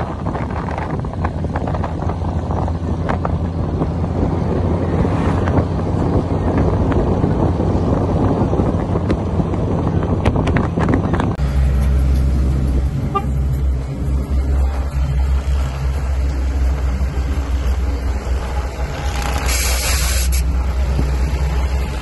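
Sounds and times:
wind buffeting microphone: 0.0s - 11.4s
motorcycle engine drone: 0.0s - 22.0s.

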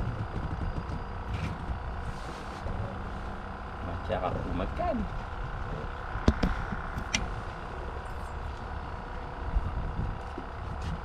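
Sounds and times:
boat engine rumbling with whine: 0.0s - 11.0s
sharp knocks: 6.2s - 7.2s.

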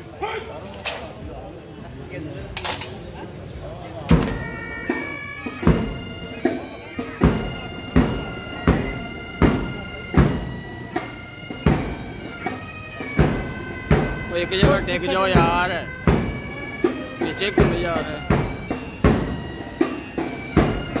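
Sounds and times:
bagpipes playing a tune: 3.6s - 21.0s
bass drum march beat: 7.2s - 10.6s, 13.0s - 19.6s.

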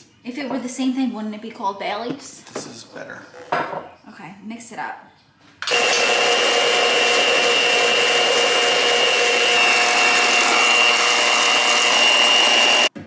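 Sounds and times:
electric hand mixer running: 5.7s - 13.0s.

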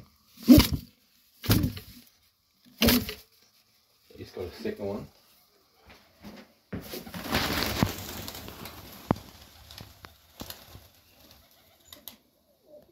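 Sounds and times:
rush of rustling: 6.9s - 11.5s
pigeons cooing: 7.6s - 12.9s.

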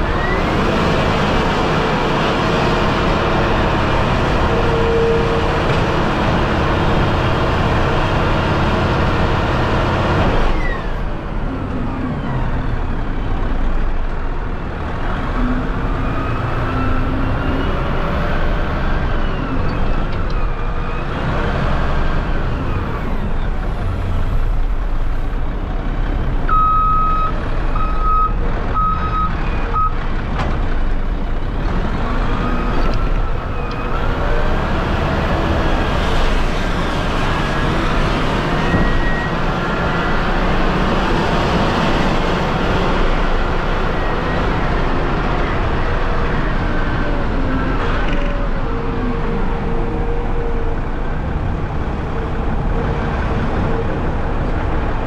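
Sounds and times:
diesel truck engine running: 0.0s - 55.0s
engine and drivetrain whine: 0.0s - 55.0s
reversing alarm beeping: 26.5s - 30.0s.

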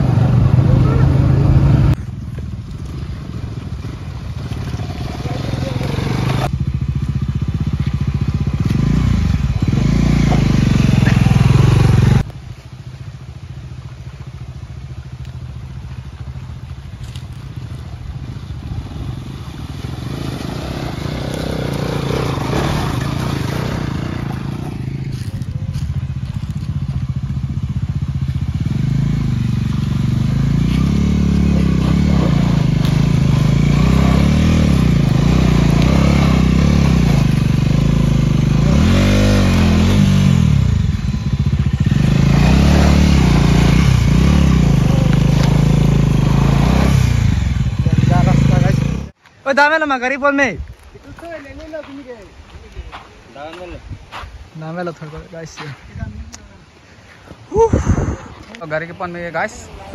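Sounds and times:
motorcycle engine revving: 0.0s - 12.3s, 14.4s - 49.2s.

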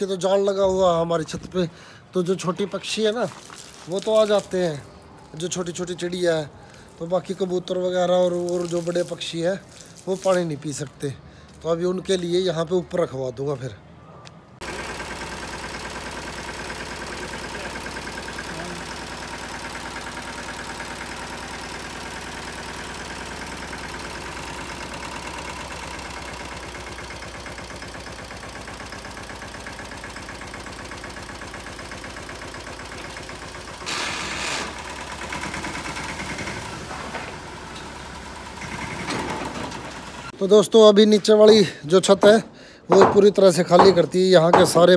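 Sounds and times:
tractor diesel engine running: 14.6s - 40.5s, 41.2s - 44.9s.

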